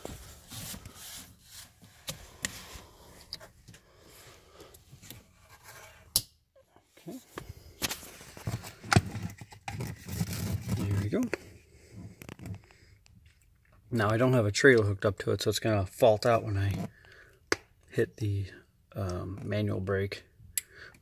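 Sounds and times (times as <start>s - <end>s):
hands rustling against plastic: 0.0s - 3.8s.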